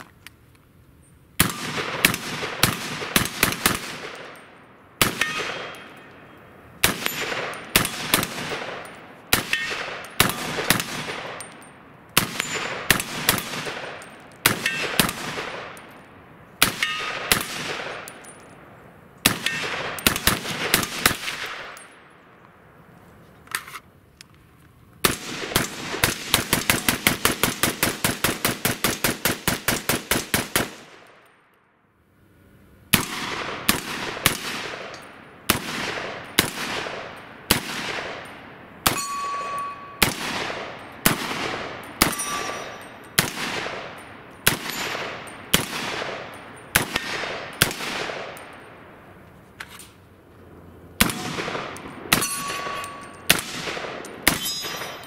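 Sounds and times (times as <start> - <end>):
pistol shots with echo: 1.4 - 16.0, 16.6 - 18.4, 19.2 - 22.0, 32.9 - 48.9, 51.0 - 55.0
steel targets ringing: 5.2 - 8.1, 8.7 - 10.7, 16.8 - 17.3, 38.3 - 41.0, 41.7 - 43.2, 43.8 - 45.5, 51.1 - 53.4, 54.0 - 55.0.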